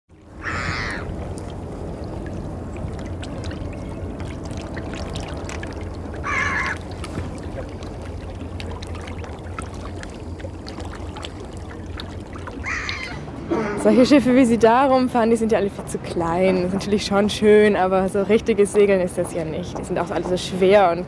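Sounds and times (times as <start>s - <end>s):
water splashing along boat hull: 0.1s - 21.0s
gull calling: 0.4s - 1.1s, 6.2s - 6.8s, 12.6s - 14.0s.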